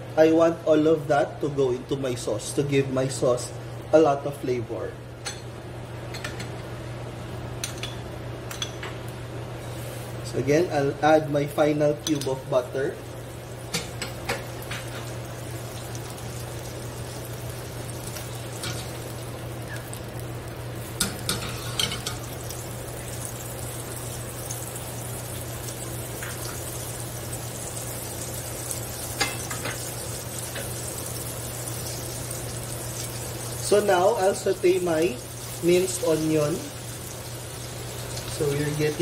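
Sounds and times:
butter sizzling in a pan: 12.5s - 39.0s.

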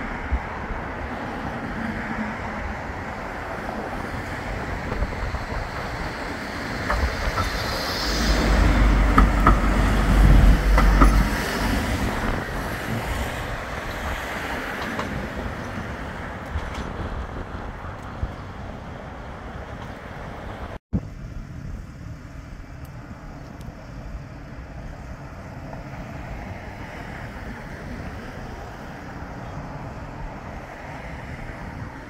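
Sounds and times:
tram passing with low rumble: 0.0s - 32.0s
sharp clicks of tram: 3.4s - 20.8s.

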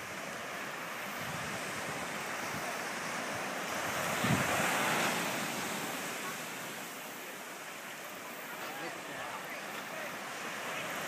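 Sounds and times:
wind buffeting microphone: 0.0s - 6.2s
ocean surf on sand: 0.0s - 11.0s.

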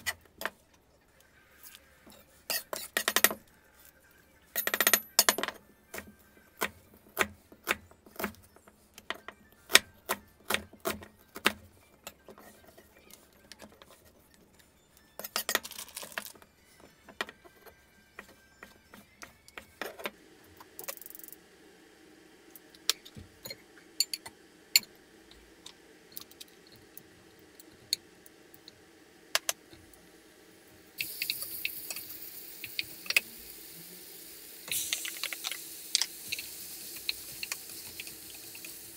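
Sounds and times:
bacon sizzling in a saucepan: 30.9s - 38.9s.

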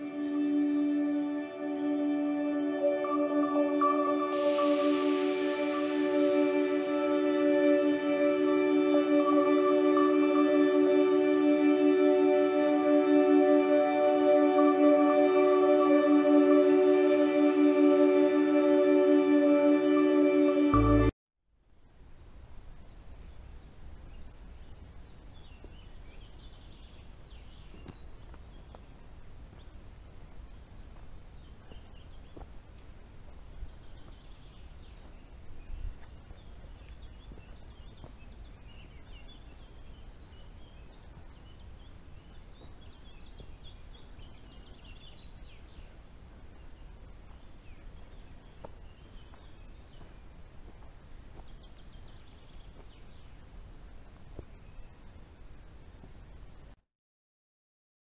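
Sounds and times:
songbirds twittering: 23.3s - 32.6s, 33.3s - 53.5s.

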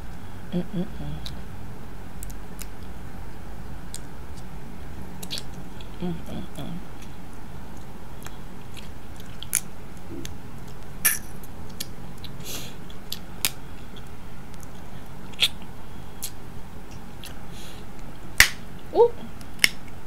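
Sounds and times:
chewing: 7.0s - 17.4s
crab shells cracking: 18.4s - 18.6s, 19.4s - 20.0s.

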